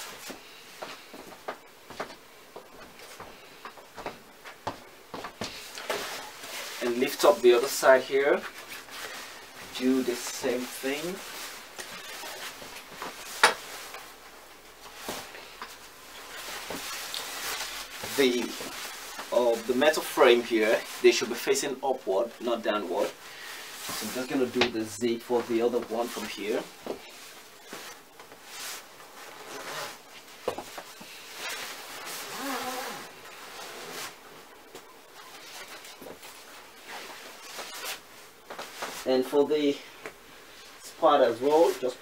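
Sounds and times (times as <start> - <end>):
fabric rustling: 0.0 - 42.0
zipper pulled along fabric: 31.5 - 34.2.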